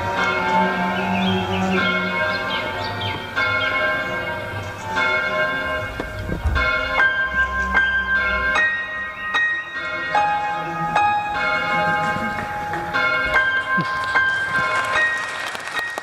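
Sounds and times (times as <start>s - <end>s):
large bell tolling: 0.0s - 16.0s.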